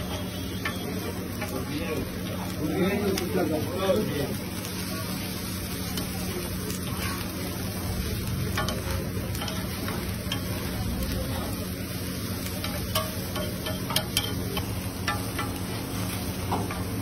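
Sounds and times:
batter sizzling on griddle: 0.0s - 17.0s
spatula clinking on iron: 8.5s - 10.8s, 12.4s - 17.0s.

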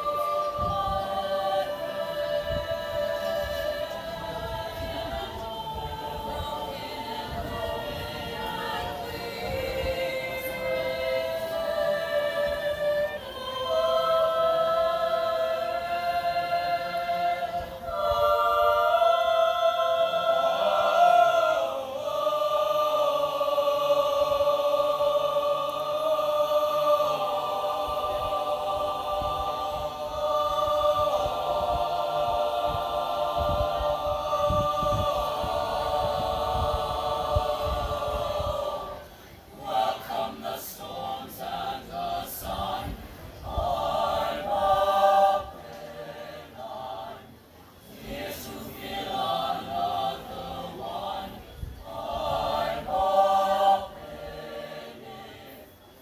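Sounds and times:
choir singing unaccompanied: 0.0s - 56.0s.

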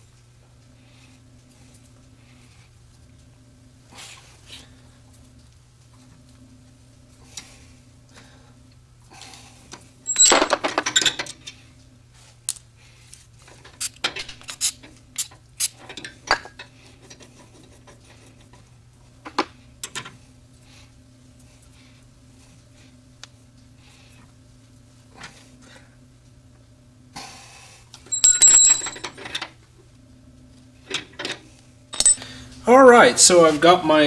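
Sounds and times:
steady low hum: 0.0s - 15.6s, 16.2s - 34.0s
metal hand tools clinking: 10.1s - 10.6s, 28.1s - 29.1s.

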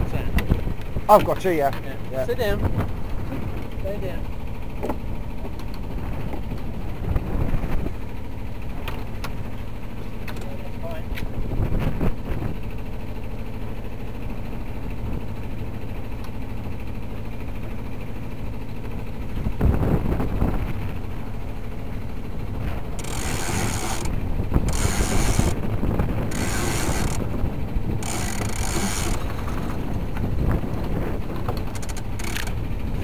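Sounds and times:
steady low rumble: 1.8s - 33.0s
winch ratcheting: 22.9s - 25.6s, 26.2s - 30.3s, 31.4s - 32.8s.

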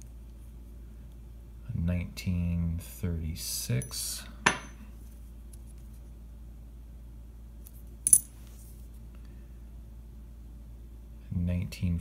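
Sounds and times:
coins clinking in hand: 8.0s - 8.3s.

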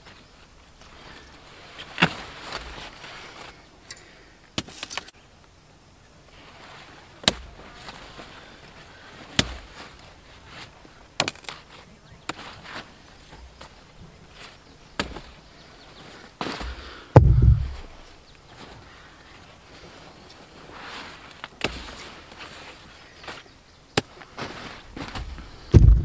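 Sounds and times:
leaves rustling: 0.0s - 3.6s, 6.2s - 23.5s, 24.1s - 26.0s
rhubarb stalks snapping: 11.2s - 11.6s.

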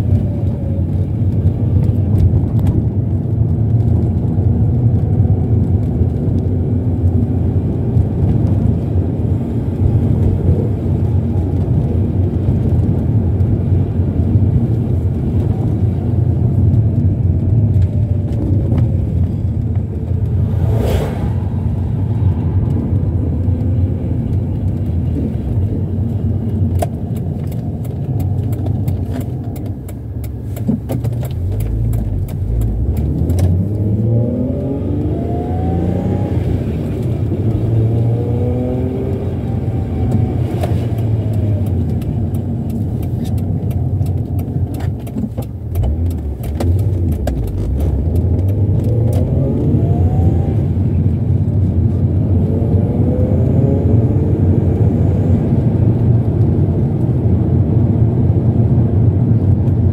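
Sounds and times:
car engine and road rumble: 0.0s - 59.9s
light clicks and ticks: 22.6s - 33.8s, 40.0s - 49.5s.

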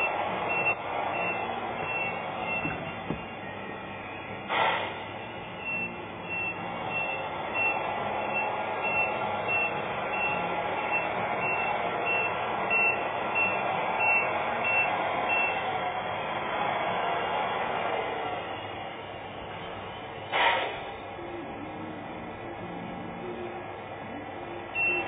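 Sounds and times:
reversing beeper beeps: 0.0s - 4.4s, 5.2s - 15.6s, 24.8s - 25.0s.

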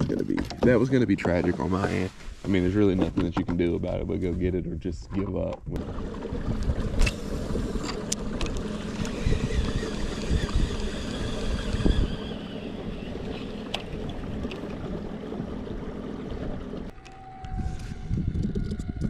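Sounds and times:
wind buffeting microphone: 2.6s - 16.9s, 17.5s - 19.0s
water rushing along hull: 5.8s - 17.0s.

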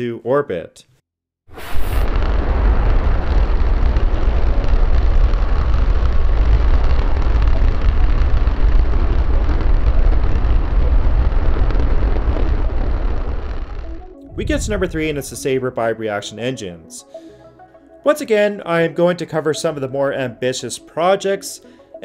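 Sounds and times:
rocket engine firing: 1.5s - 15.8s.

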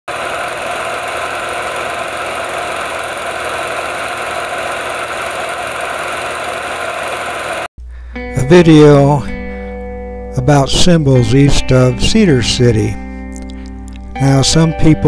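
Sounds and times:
film projector whirring: 0.1s - 7.7s
projector clatter: 0.1s - 7.7s.

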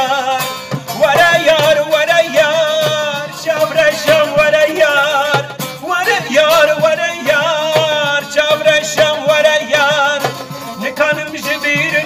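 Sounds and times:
percussion beats: 0.0s - 12.0s
song with ornamented vocal melody: 0.0s - 12.0s.

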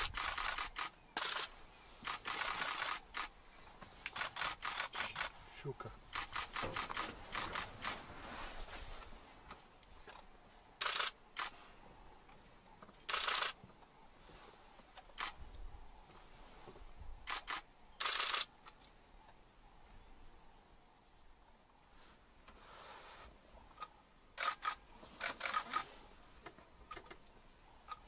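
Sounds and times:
camera shutter clicks: 0.0s - 3.3s, 4.1s - 5.3s, 10.8s - 11.6s, 13.1s - 13.6s, 17.2s - 18.5s, 24.4s - 25.8s.

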